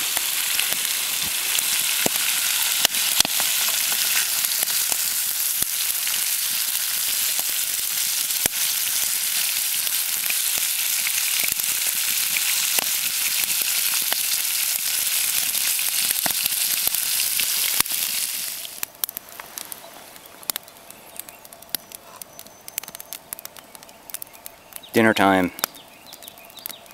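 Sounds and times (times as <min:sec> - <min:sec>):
fish sizzling in oil: 0:00.0 - 0:19.7.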